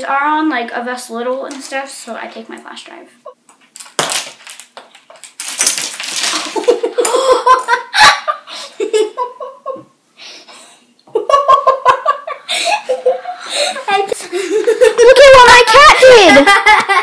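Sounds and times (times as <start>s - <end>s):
girls laughing and giggling: 6.3s - 10.0s, 11.1s - 17.0s.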